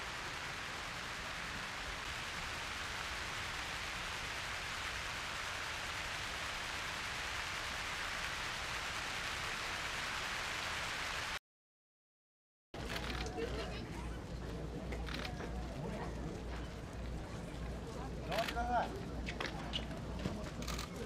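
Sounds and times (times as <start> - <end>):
steady rain falling: 0.0 - 11.4.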